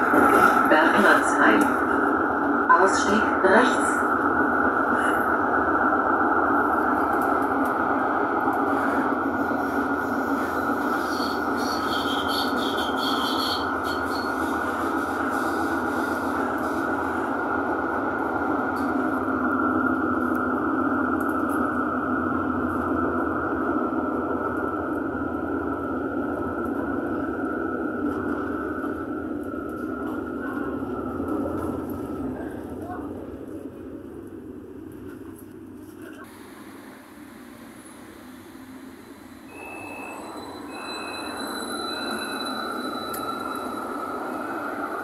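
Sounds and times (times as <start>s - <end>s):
tram rolling rumble: 0.0s - 45.0s
wheel squeal: 39.5s - 44.0s.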